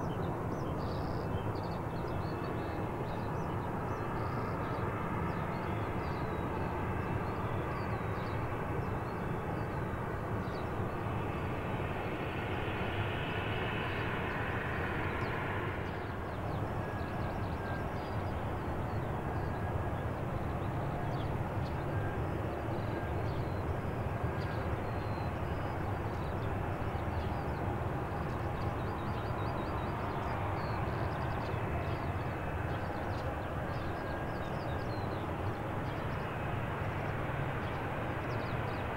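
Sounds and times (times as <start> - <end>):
jet engine rumble with whine: 0.0 - 38.9.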